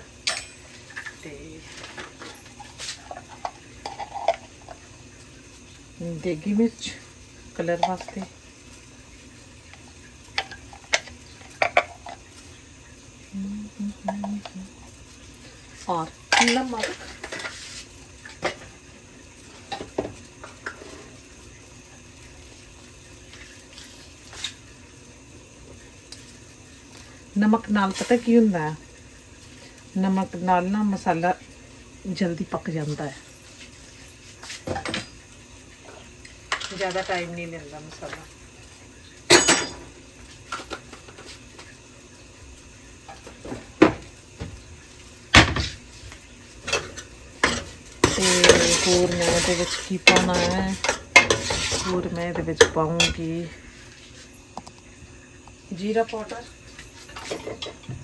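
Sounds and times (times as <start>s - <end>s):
curry sizzling in a pot: 0.0s - 58.0s
kitchen knocks and clatters: 0.2s - 4.8s, 7.7s - 8.3s, 10.3s - 12.3s, 15.9s - 18.8s, 19.5s - 21.1s, 34.3s - 35.2s, 35.8s - 37.3s, 39.3s - 41.7s, 43.0s - 44.6s, 45.3s - 53.3s, 56.1s - 58.0s.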